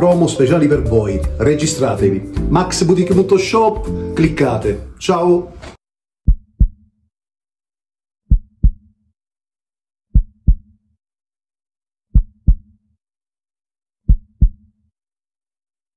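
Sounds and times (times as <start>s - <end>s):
heartbeat thumps: 6.3s - 6.8s, 8.3s - 8.9s, 10.1s - 10.7s, 12.1s - 12.7s, 14.1s - 14.6s.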